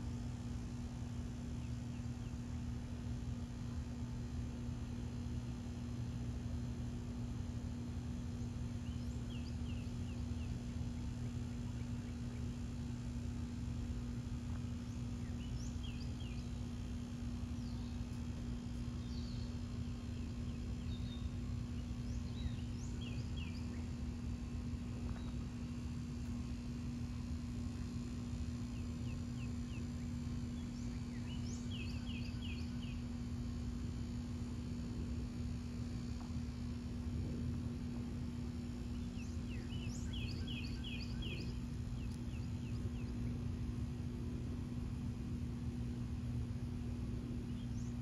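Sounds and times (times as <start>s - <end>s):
steady low hum: 0.0s - 48.0s
small birds chirping: 8.3s - 36.8s, 37.9s - 44.0s, 46.7s - 48.0s
songbird chirping: 17.5s - 24.1s, 28.7s - 33.0s, 38.8s - 43.6s.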